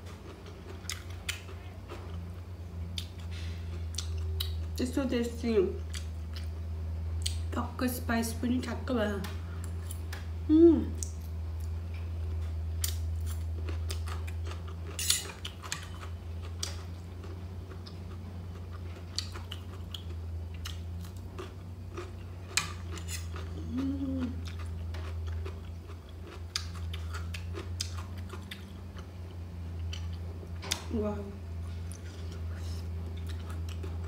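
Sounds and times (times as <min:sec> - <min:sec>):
steady low hum: 0:00.0 - 0:34.0
person chewing noodles: 0:00.2 - 0:02.3, 0:02.9 - 0:04.8, 0:05.8 - 0:06.5, 0:12.7 - 0:30.3, 0:31.6 - 0:34.0.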